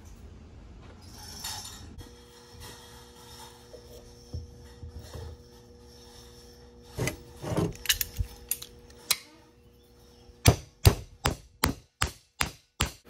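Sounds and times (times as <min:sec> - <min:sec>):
metal parts clinking and scraping: 0:01.0 - 0:10.4.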